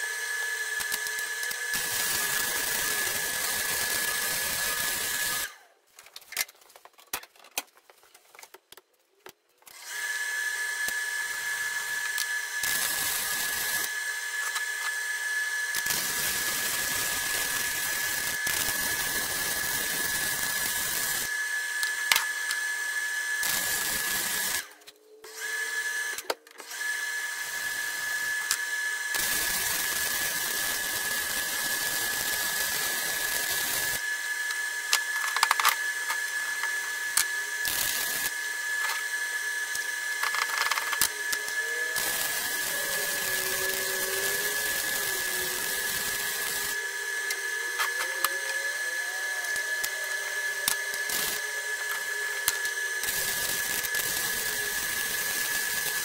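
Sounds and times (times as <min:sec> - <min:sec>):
arc welding crackling sizzle: 0:00.0 - 0:05.6, 0:10.8 - 0:15.0, 0:15.6 - 0:22.6, 0:23.4 - 0:24.9, 0:27.6 - 0:48.6, 0:49.4 - 0:56.0
thin high whine: 0:34.8 - 0:56.0.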